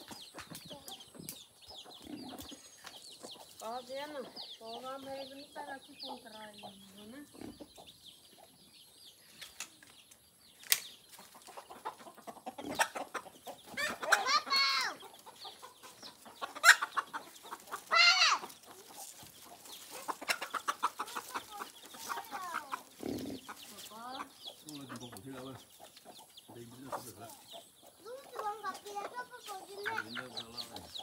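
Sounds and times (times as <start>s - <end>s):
chickens clucking: 0.0s - 31.0s
leaves and stems rustling: 10.6s - 11.6s, 16.6s - 31.0s
chicken squawking: 11.8s - 15.0s, 16.4s - 18.9s.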